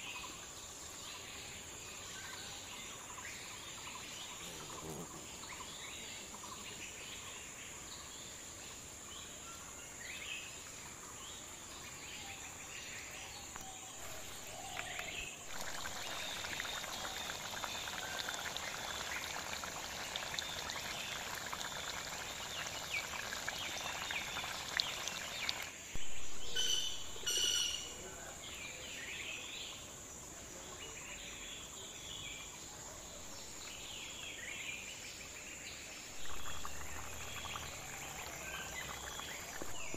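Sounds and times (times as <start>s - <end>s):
insect buzz: 0.0s - 30.4s, 35.1s - 39.9s
birds chirping: 13.5s - 28.8s
curry bubbling over fire: 14.0s - 26.5s, 36.1s - 39.9s
loud short pitched calls: 26.5s - 27.9s.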